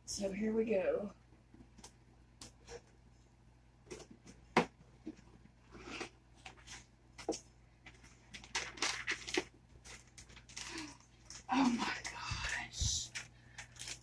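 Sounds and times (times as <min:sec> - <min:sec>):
paper rustling: 0:05.7 - 0:14.0.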